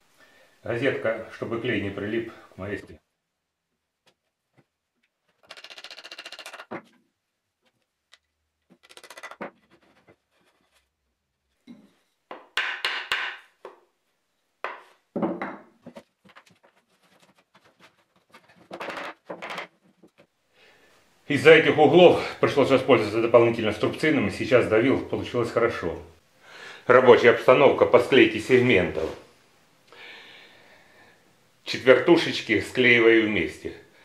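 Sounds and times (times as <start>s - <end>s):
wooden mallet tapping wood: 12.3s - 13.8s, 14.6s - 15.6s
wooden pieces scraping on workbench: 15.8s - 20.3s.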